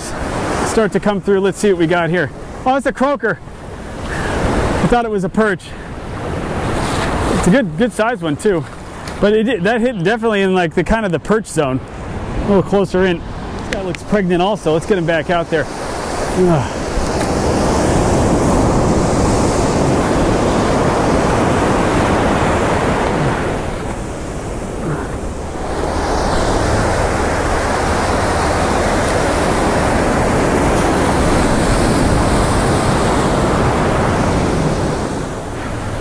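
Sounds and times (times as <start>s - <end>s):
ocean surf washing: 0.0s - 36.0s
wind on microphone: 15.7s - 36.0s.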